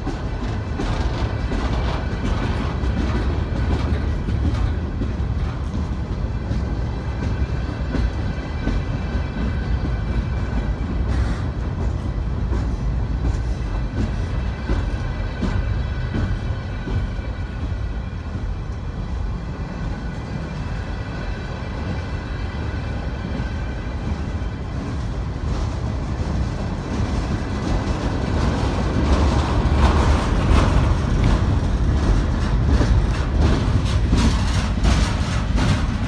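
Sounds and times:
train wheels rumbling on rail: 0:00.0 - 0:36.0
wheels clicking and clacking: 0:24.8 - 0:36.0.

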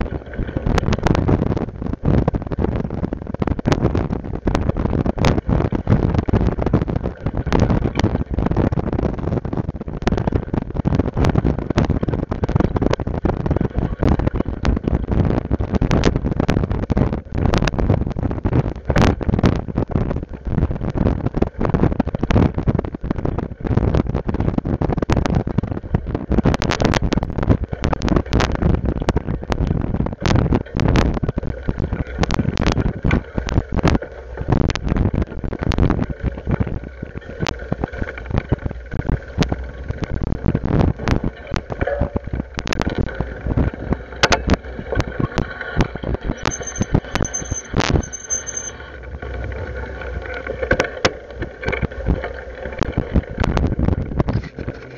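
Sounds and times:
wind buffeting microphone: 0:00.0 - 0:48.1, 0:48.7 - 0:54.9
faint high whine: 0:46.3 - 0:50.6.

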